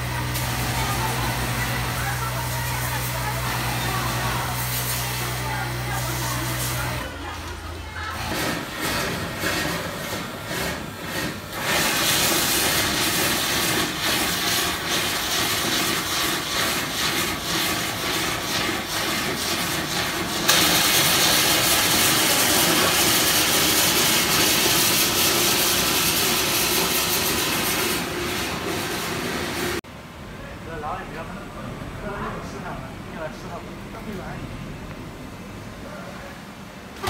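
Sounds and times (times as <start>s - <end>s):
pillow-filling machine blower rushing: 19.8s - 29.8s.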